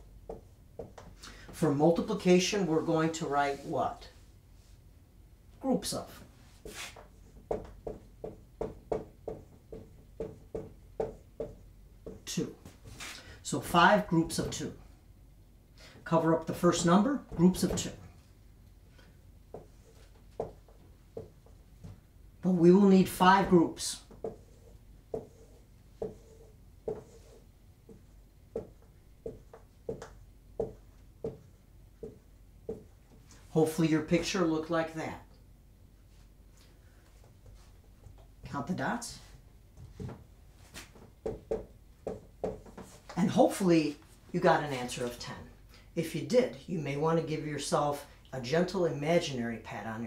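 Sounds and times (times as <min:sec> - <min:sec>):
marker tapping on whiteboard: 0:00.3 - 0:01.1, 0:07.4 - 0:12.3, 0:19.5 - 0:22.0, 0:24.1 - 0:32.9, 0:41.0 - 0:43.0
marker squeaking on whiteboard: 0:24.2 - 0:28.0.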